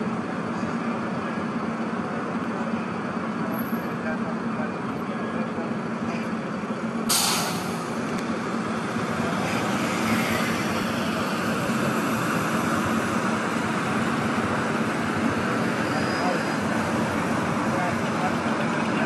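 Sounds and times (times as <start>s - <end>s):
street traffic: 0.0s - 19.0s
sudden hiss: 7.1s - 8.0s.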